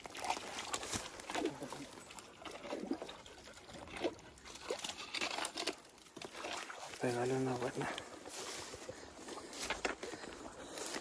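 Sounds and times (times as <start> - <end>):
dog lapping water: 0.0 - 7.5.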